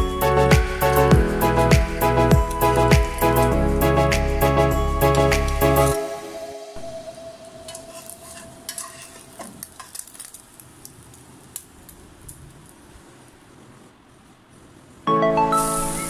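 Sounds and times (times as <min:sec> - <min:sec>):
tortilla sizzling in oil: 0:00.0 - 0:03.6, 0:07.4 - 0:13.3
metal spatula scraping pan: 0:07.6 - 0:10.2.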